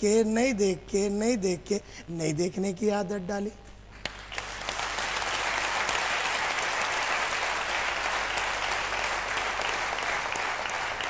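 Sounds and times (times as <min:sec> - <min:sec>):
audience applauding: 0:04.0 - 0:11.0.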